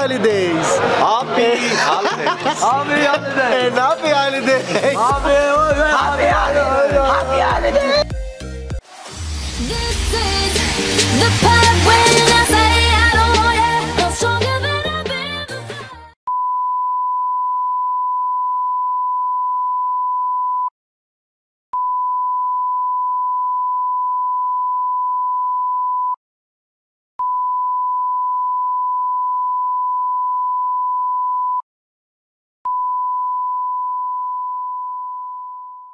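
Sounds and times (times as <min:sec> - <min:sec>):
music: 0:00.1 - 0:16.2
electronic test-tone beep: 0:32.7 - 0:35.9.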